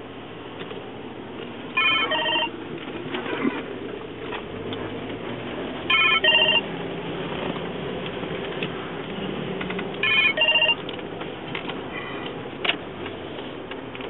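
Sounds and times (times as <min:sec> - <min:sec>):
car road noise: 0:00.0 - 0:14.0
phone electronic double ring: 0:01.8 - 0:02.5, 0:05.9 - 0:06.6, 0:10.0 - 0:10.8.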